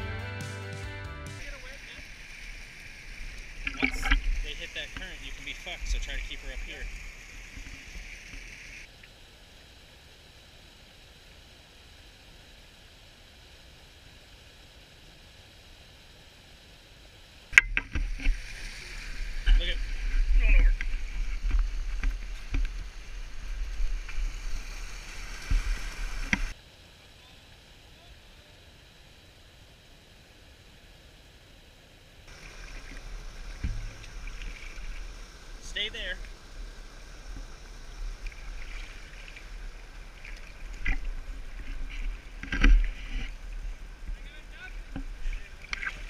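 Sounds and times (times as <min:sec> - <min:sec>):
river current rushing and gurgling: 0:01.4 - 0:46.0
low rumble on microphone: 0:32.3 - 0:46.0
whitewater rushing over a weir: 0:32.3 - 0:46.0.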